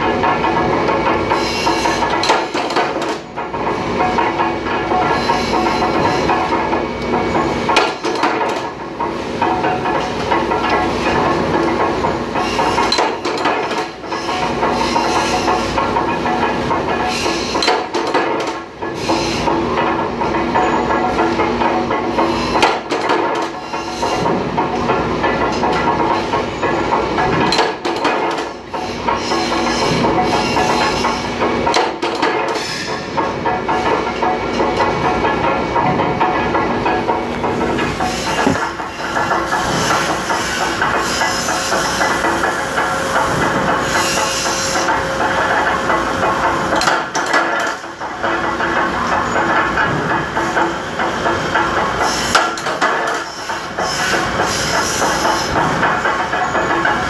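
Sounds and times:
steady machine hum: 0:00.0 - 0:57.0.

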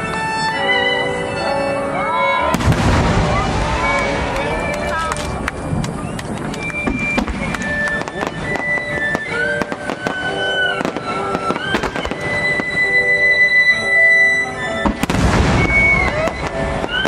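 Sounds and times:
music with gliding held tones: 0:00.0 - 0:03.3, 0:07.5 - 0:17.0
firework shells bursting and crackling: 0:02.5 - 0:13.9, 0:14.7 - 0:17.0.

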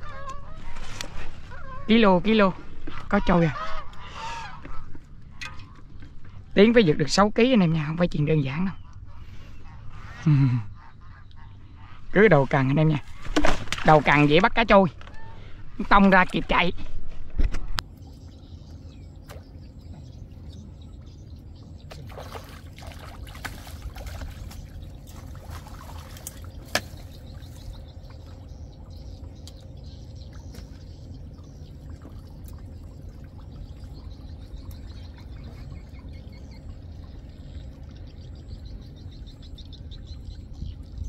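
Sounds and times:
steady low rumble: 0:00.0 - 0:41.0
water trickling and dripping: 0:17.8 - 0:41.0.

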